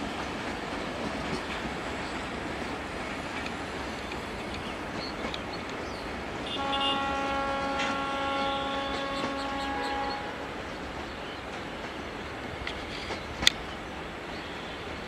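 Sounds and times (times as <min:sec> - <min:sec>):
train rumbling on rails: 0:00.0 - 0:15.0
diesel locomotive horn: 0:06.4 - 0:10.7.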